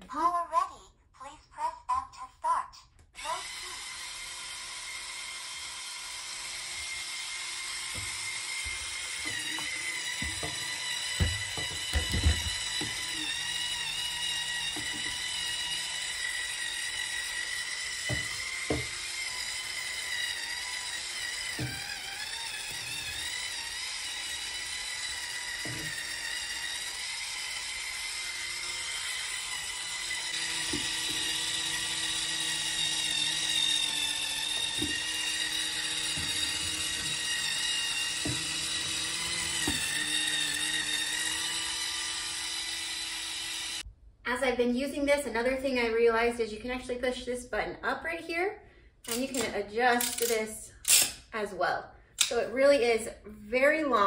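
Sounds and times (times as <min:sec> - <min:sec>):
spin scrubber motor whining: 0:03.2 - 0:43.9.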